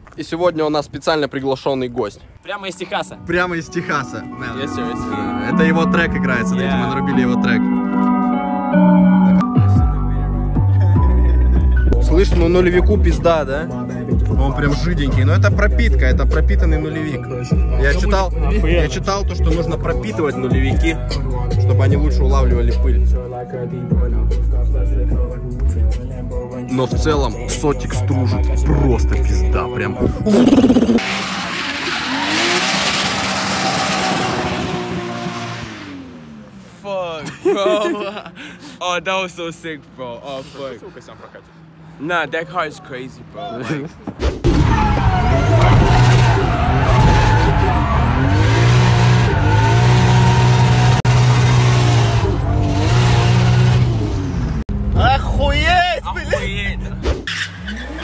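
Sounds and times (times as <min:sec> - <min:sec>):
deep bass line: 0:04.6 - 0:31.3, 0:44.4 - 0:57.0
rap vocals: 0:09.5 - 0:31.0
car engine at high revs: 0:30.3 - 0:36.7, 0:45.1 - 0:54.9
tyre and road hiss: 0:40.2 - 0:40.9.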